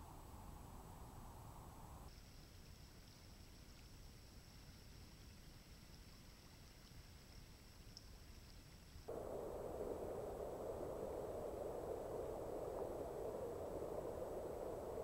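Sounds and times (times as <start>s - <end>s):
faint hiss: 0.0s - 15.0s.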